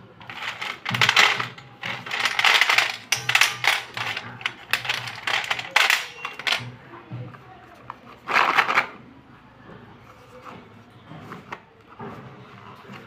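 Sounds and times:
pencils clattering on metal plate: 0:00.0 - 0:06.8, 0:08.2 - 0:09.0.

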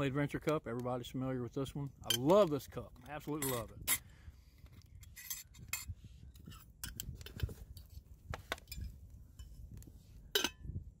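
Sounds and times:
metal cup and lid clinking: 0:03.3 - 0:04.0, 0:10.3 - 0:10.7.

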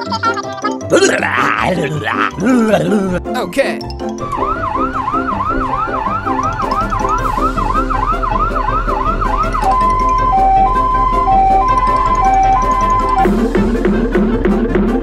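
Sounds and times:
light background music: 0:00.0 - 0:15.0
toy siren rising sweep: 0:04.2 - 0:13.3
two-tone high-low siren: 0:04.4 - 0:13.2.

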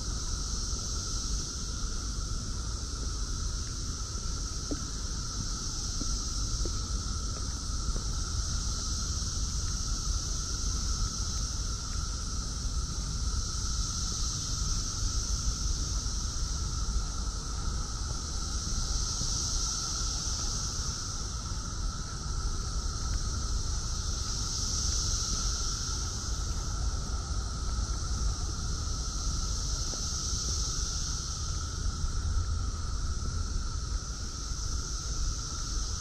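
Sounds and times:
cicadas droning in chorus: 0:00.0 - 0:36.0.

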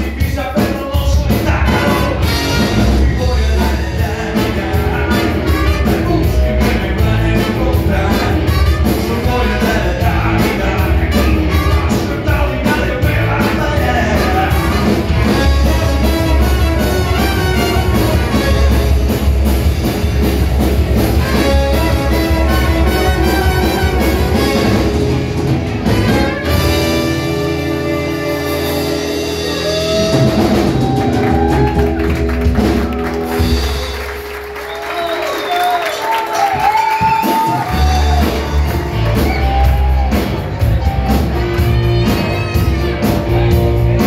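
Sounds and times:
person singing: 0:00.0 - 0:18.4, 0:26.3 - 0:31.9
live band playing amplified music: 0:00.0 - 0:44.0.

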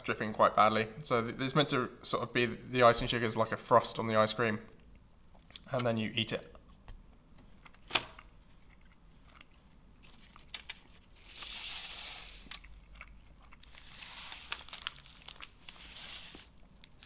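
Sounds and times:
chewing candy: 0:12.5 - 0:13.9.

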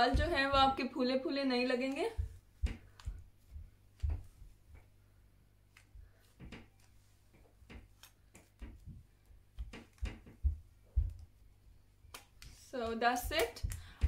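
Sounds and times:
soft low thumps: 0:00.0 - 0:05.0, 0:08.6 - 0:11.6.

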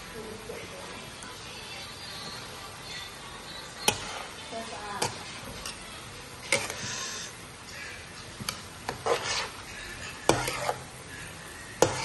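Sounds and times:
food sizzling in a pan: 0:00.1 - 0:12.0
spatula clacking against pan: 0:03.8 - 0:04.2, 0:10.3 - 0:10.8, 0:11.8 - 0:12.0
spatula scraping and tossing food: 0:03.8 - 0:12.0.

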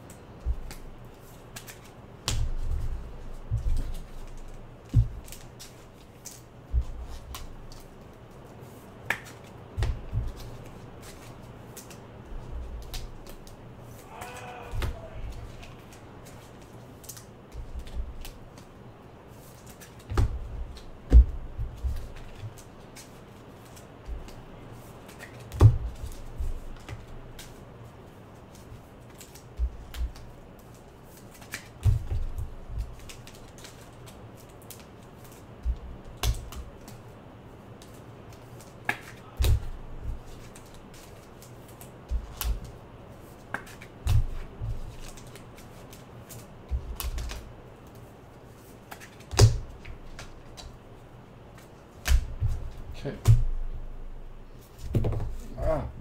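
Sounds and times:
cards clicking and tapping on table: 0:00.4 - 0:00.9, 0:09.0 - 0:12.0, 0:28.5 - 0:37.0, 0:37.8 - 0:42.8, 0:43.5 - 0:48.0, 0:48.8 - 0:50.7, 0:54.8 - 0:55.4.

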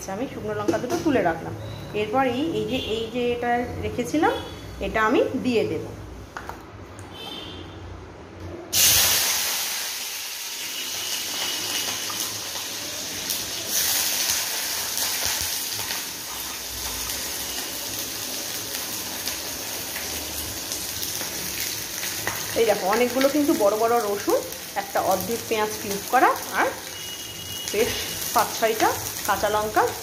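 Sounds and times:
vegetables sizzling in hot oil: 0:08.7 - 0:30.0.

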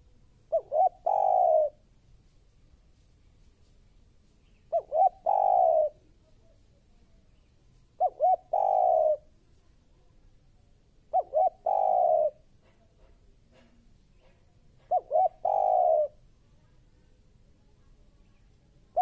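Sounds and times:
dove cooing: 0:00.0 - 0:01.8, 0:04.7 - 0:06.1, 0:08.0 - 0:09.3, 0:11.1 - 0:12.8, 0:14.8 - 0:16.2.

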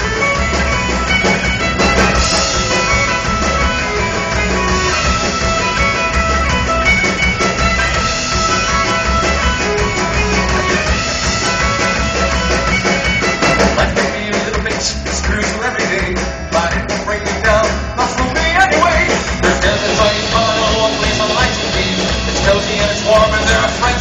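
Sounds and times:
fiddle: 0:00.0 - 0:14.2
drums: 0:00.0 - 0:24.0
folk-rock band playing: 0:00.0 - 0:24.0
guitars: 0:00.0 - 0:24.0
keyboard: 0:00.0 - 0:24.0
man singing into a microphone: 0:13.6 - 0:24.0.

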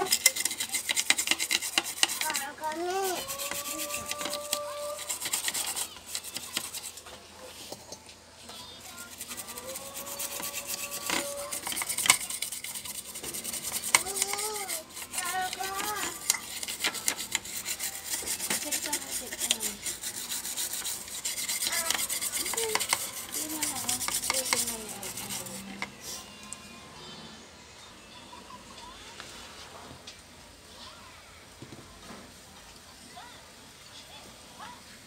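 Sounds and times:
toothbrush scrubbing circuit board: 0:00.0 - 0:07.0, 0:08.9 - 0:25.9.

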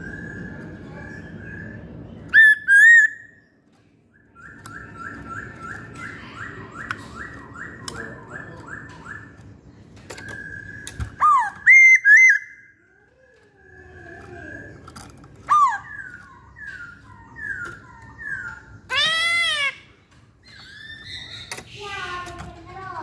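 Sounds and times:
bird whistled calls: 0:00.0 - 0:03.4, 0:10.1 - 0:12.8, 0:15.4 - 0:19.8.

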